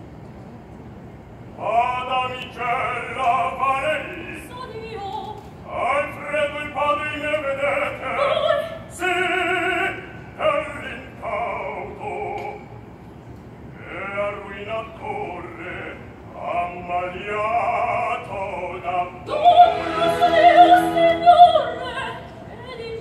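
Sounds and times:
opera singer with vibrato: 1.6 - 12.8, 13.8 - 23.0
quiet orchestra: 14.3 - 23.0.

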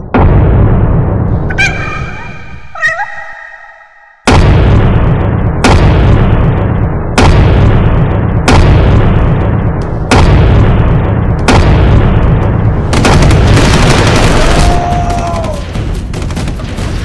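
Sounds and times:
heavy booms: 0.0 - 2.7, 4.3 - 17.0
rapid gunfire: 4.3 - 17.0.

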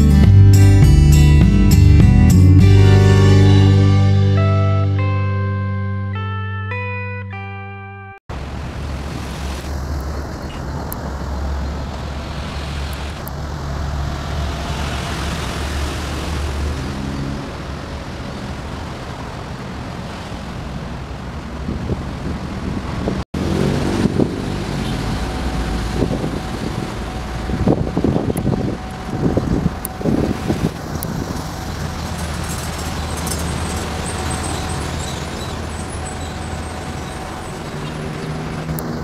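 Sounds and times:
traffic rumble: 8.3 - 39.0
rough rumble with knocks: 23.1 - 39.0.

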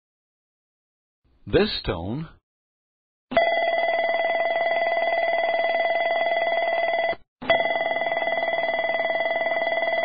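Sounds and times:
rapid electronic bell ringing: 3.3 - 10.0.

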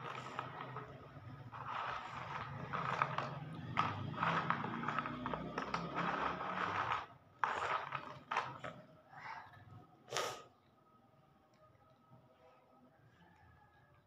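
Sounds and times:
items rustling in plastic box: 0.0 - 8.8.

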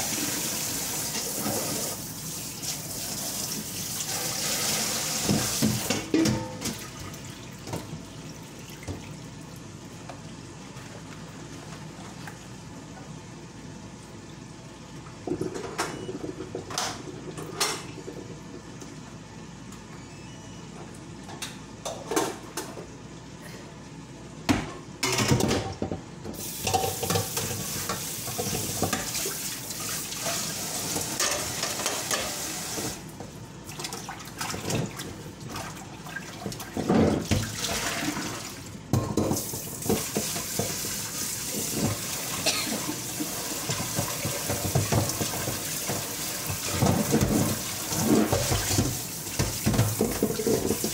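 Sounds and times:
tap water running and splashing: 0.0 - 9.4, 26.4 - 33.1, 33.7 - 50.9
dishes and utensils clinking: 5.3 - 6.7, 15.3 - 17.9, 26.6 - 29.2, 31.2 - 32.5.

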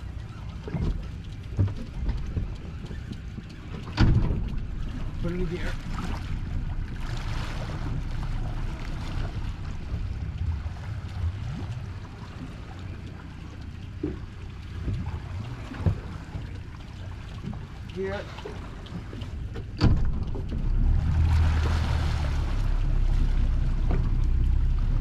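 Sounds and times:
outboard motor running: 0.0 - 25.0
water washing: 0.0 - 25.0
wind buffeting microphone: 0.7 - 25.0
brief thump: 19.8 - 20.4.

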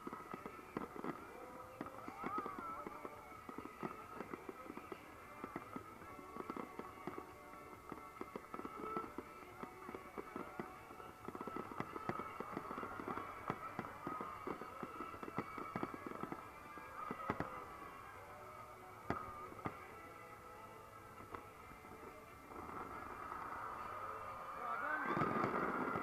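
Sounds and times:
firework bangs and crackles: 0.0 - 26.0.

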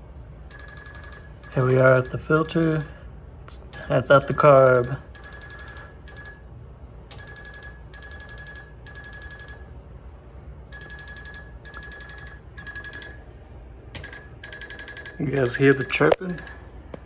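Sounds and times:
electric fuel pump chirping: 14.0 - 16.6.

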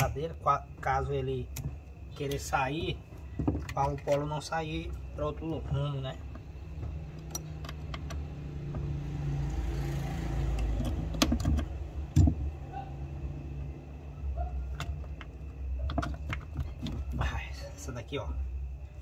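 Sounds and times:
metal cables clicking and knocking: 3.3 - 8.9, 10.5 - 12.6, 14.6 - 17.3.

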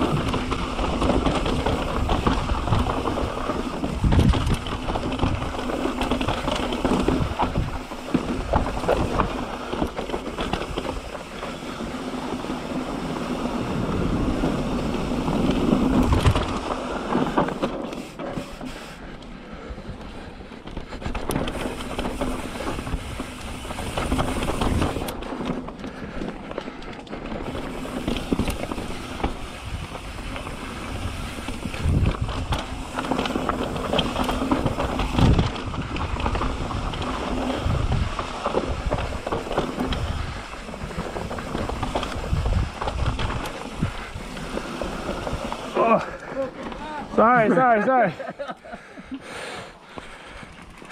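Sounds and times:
wind on microphone: 0.0 - 5.7, 27.4 - 45.8
bike tyres rolling over rock: 0.0 - 48.9, 49.7 - 50.9
bike rattling: 0.0 - 50.9.

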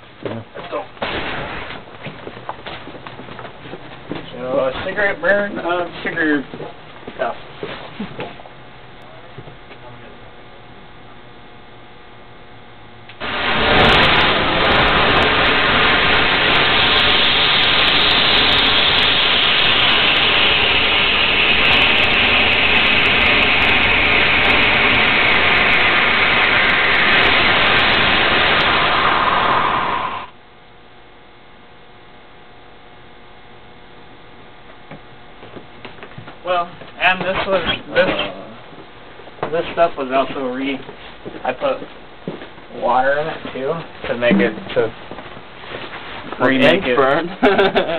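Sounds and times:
rocket igniter rushing hiss: 1.0 - 1.8, 13.1 - 30.4
sharp crackles: 12.6 - 31.0.

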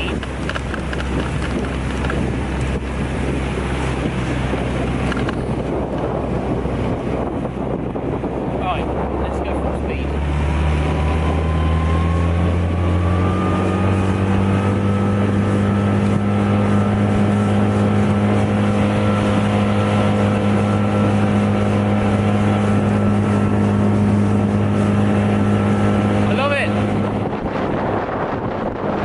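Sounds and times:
outboard motor at full throttle: 0.0 - 29.0.

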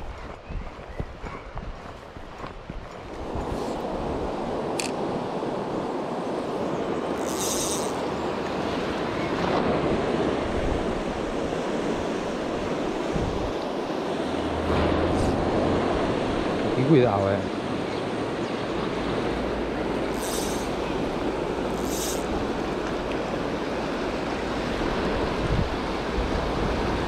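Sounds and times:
high-pitched rasp: 7.2 - 8.0, 20.2 - 20.8, 21.8 - 22.3.

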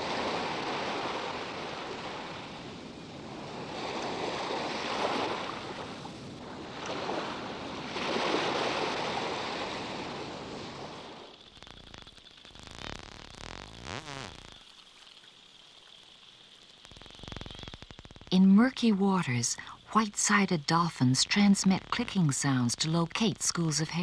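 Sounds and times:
sea water washing and splashing: 0.0 - 13.4.

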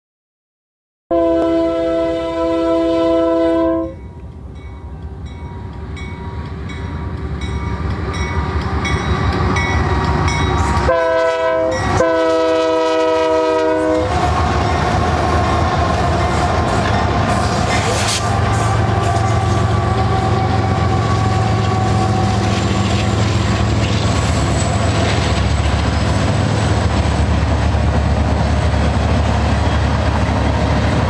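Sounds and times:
locomotive air horn: 1.1 - 4.0, 10.6 - 14.4, 17.4 - 22.7
locomotive engine rumble: 4.0 - 31.0
wheels on rails: 13.9 - 31.0.

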